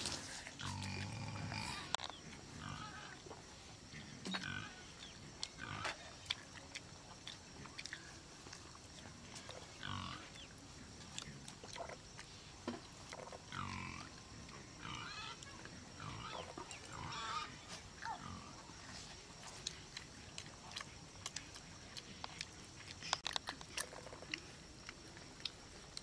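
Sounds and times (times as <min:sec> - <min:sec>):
chewing and lip-smacking: 0:05.0 - 0:13.4, 0:18.7 - 0:26.0.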